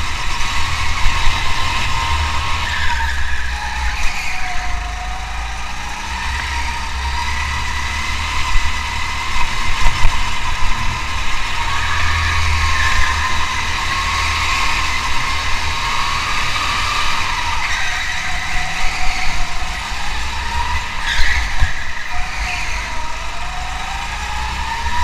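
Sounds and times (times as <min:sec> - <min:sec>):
car engine running with whine: 0:00.0 - 0:25.0.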